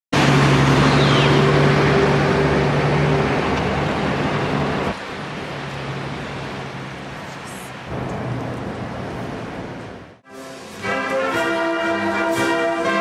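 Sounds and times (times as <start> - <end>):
road noise rushing: 0.1 - 13.0
vehicle engine humming: 0.2 - 13.0.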